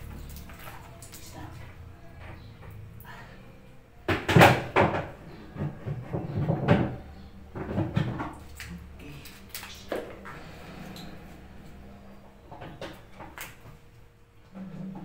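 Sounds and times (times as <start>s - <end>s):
knocks and scrapes on plastic tub: 4.1s - 8.4s.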